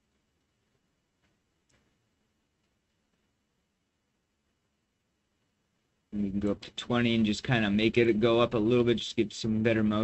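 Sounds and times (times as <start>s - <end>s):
faint mouse clicks: 1.2s - 2.0s.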